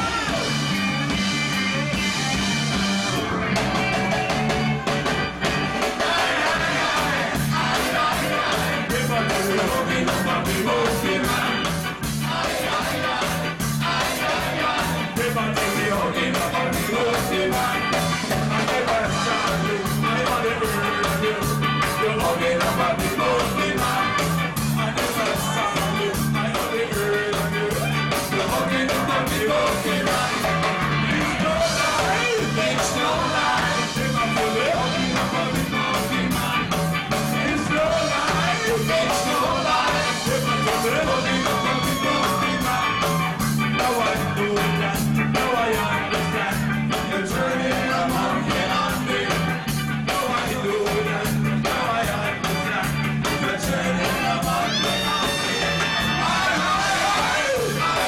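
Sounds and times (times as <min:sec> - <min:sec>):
ska band playing live: 0:00.0 - 0:58.0
person singing: 0:14.0 - 0:58.0.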